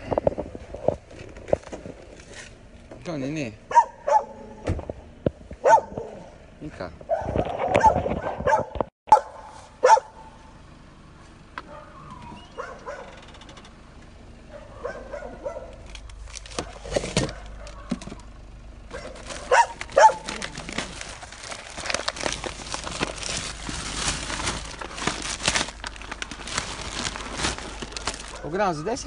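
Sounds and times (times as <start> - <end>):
dog barking: 3.7 - 4.4, 5.6 - 6.3, 7.1 - 10.3, 11.7 - 12.0, 12.6 - 13.2, 14.5 - 15.8, 16.6 - 18.0, 18.9 - 20.3, 28.3 - 28.6.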